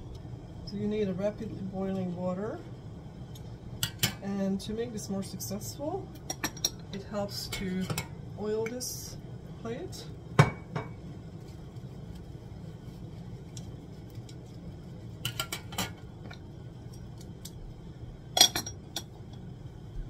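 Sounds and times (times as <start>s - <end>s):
water boiling in a pot: 0.0s - 20.0s
metal utensil clinking and tapping: 6.2s - 6.8s, 15.2s - 16.4s, 18.4s - 19.2s
metal clattering on pot rim: 15.2s - 16.0s, 18.4s - 19.1s.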